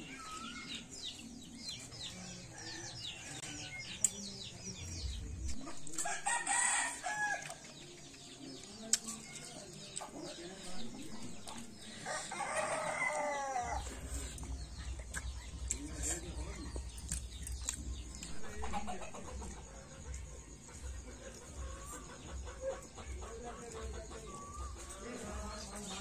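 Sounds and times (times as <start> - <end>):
small birds chirping: 0.0 - 26.0
rooster crowing: 6.0 - 7.5, 12.0 - 13.9.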